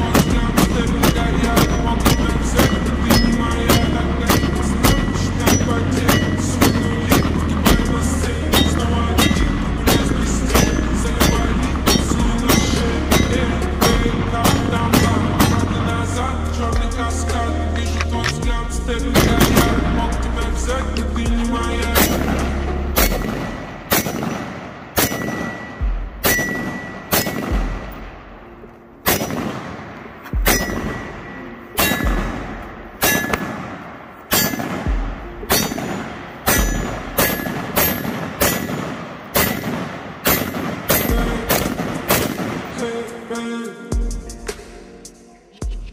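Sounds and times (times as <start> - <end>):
high ring: 0.0 - 8.0, 8.6 - 15.8, 25.0 - 27.4, 30.3 - 33.6, 34.3 - 38.8
rifle shots: 0.0 - 16.0, 19.1 - 20.0, 21.8 - 43.4.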